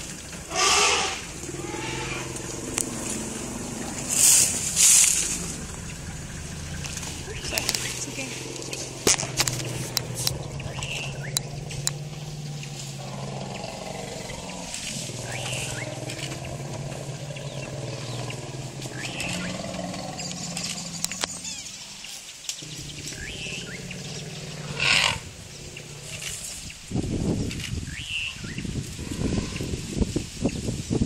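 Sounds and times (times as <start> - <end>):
elephants rumbling and roaring: 0.0 - 30.2
elephant high call: 0.5 - 9.0.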